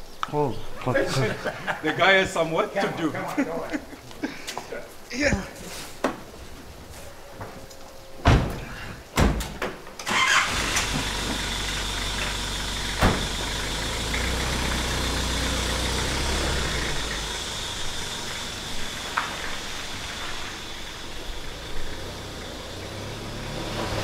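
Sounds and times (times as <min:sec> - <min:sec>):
car doors slamming: 0:08.2 - 0:09.7, 0:12.9 - 0:13.5
engine starting and running: 0:10.0 - 0:24.0.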